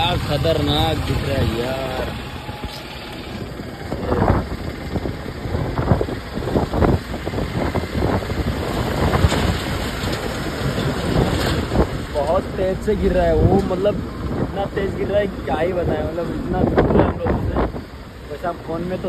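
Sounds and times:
vehicle engine running: 0.0s - 11.2s
wind buffeting microphone: 0.0s - 18.1s.

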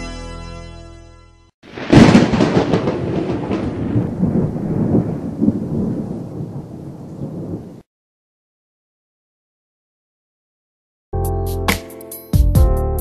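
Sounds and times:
thunderclap crack: 1.6s - 7.9s
rolling thunder rumble: 1.7s - 7.9s.

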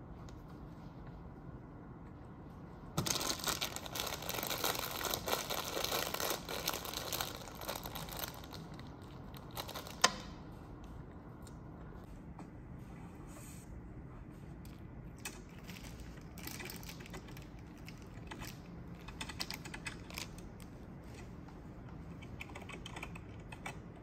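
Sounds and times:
crinkling and rustling: 2.9s - 12.1s, 14.5s - 23.7s.

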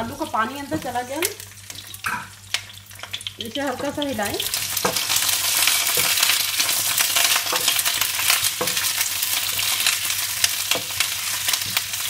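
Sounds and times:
potatoes sizzling in oil: 0.0s - 12.0s
spatula knocking against pan: 4.8s - 5.1s.

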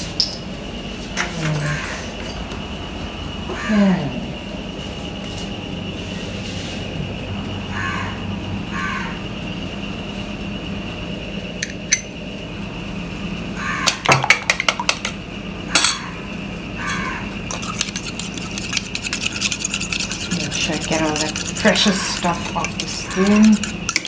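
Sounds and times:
steady background hum: 0.0s - 24.0s
spoon clinking against bowl: 17.5s - 24.0s.

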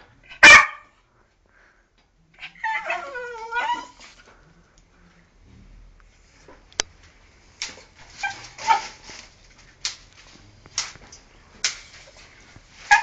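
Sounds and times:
dog yipping and whining: 2.4s - 4.1s, 8.2s - 9.0s.

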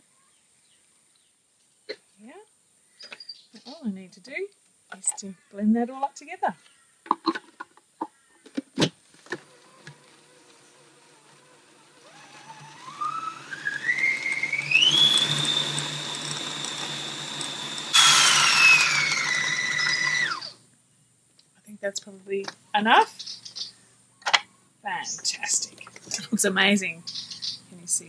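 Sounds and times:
food processor motor whining: 9.2s - 20.6s.

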